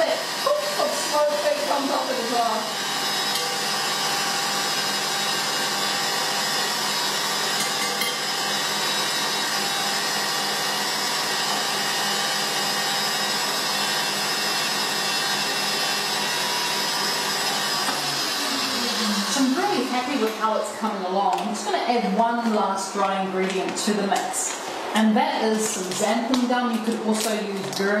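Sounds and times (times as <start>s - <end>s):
stand mixer motor whine: 0.0s - 21.8s
whisk whirring in bowl: 0.0s - 28.0s.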